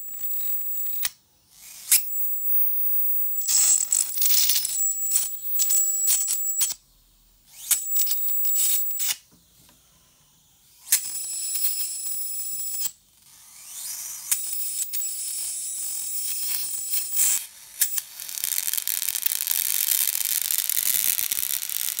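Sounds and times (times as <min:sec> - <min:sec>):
thin high whine: 0:01.8 - 0:09.2, 0:14.3 - 0:22.0
electric arc crackling: 0:03.3 - 0:06.7, 0:14.4 - 0:22.0.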